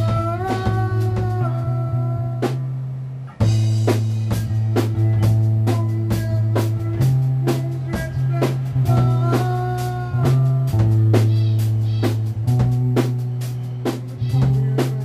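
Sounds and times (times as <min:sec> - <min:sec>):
electric bass notes: 0:00.0 - 0:15.0
drum kit hits: 0:03.4 - 0:15.0.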